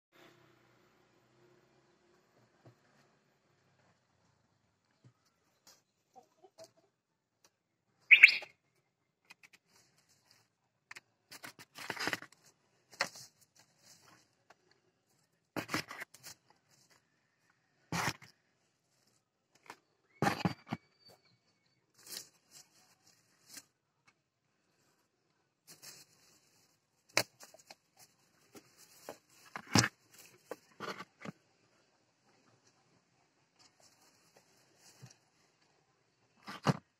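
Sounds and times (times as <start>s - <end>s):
hen clucking: 6.0s - 7.0s, 8.1s - 8.5s
hen squawking: 8.1s - 8.5s
straw rustling and crackling: 21.9s - 23.8s, 25.6s - 31.4s.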